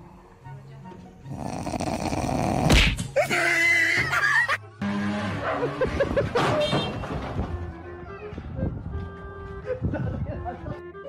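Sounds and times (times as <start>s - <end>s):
dog vocalizing: 1.3s - 2.8s.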